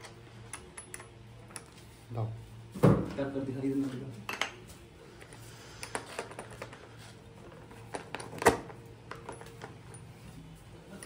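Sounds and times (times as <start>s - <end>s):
metal parts and tools clicking: 0.0s - 1.8s.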